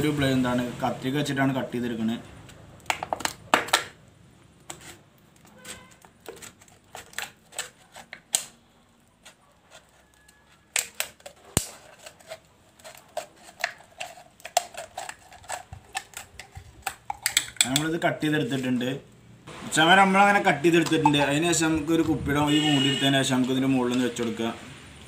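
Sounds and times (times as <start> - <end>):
scissors snipping plastic bottle: 4.7 - 8.6, 9.3 - 17.9.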